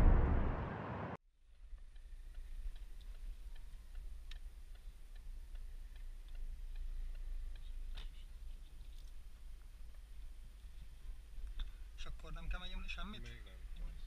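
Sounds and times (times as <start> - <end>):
turn signal ticking: 1.8 - 8.4.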